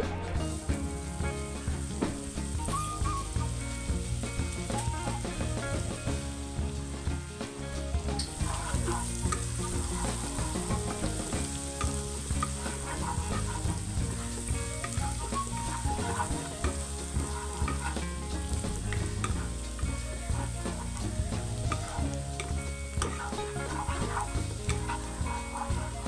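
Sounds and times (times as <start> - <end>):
garlic sizzling in butter: 0.3 - 26.0
wooden spatula scraping pan: 7.8 - 26.0.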